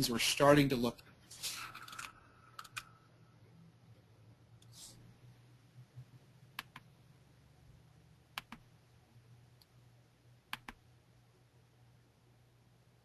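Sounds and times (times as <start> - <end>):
faint low hum: 0.0 - 13.0
computer mouse clicks: 1.7 - 2.9, 6.6 - 6.9, 8.3 - 8.7, 10.5 - 10.8.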